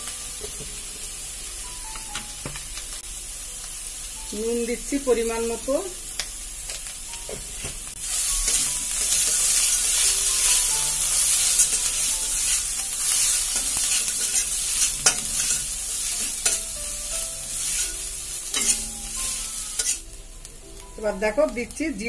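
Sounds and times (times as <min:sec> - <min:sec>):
paste sizzling in oil: 0:00.0 - 0:21.7
steel spatula scraping pan: 0:08.3 - 0:16.7, 0:17.5 - 0:20.0.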